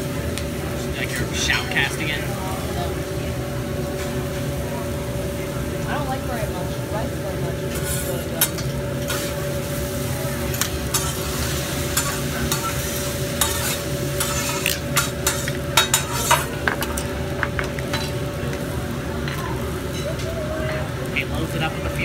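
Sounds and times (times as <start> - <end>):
griddle noise: 0.0 - 22.0
metal spatula clicking on a griddle: 7.8 - 9.2, 10.5 - 11.2, 11.9 - 12.8, 13.4 - 17.1.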